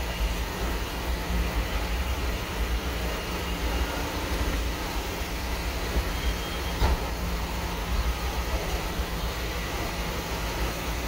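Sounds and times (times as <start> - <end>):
train running rumble: 0.0 - 11.0.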